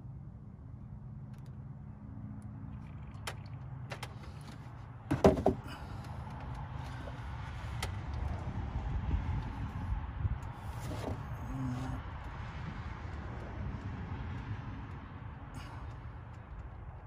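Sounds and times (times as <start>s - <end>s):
plastic jug knocking on plastic: 5.1s - 5.6s
faint clicks: 13.0s - 17.0s.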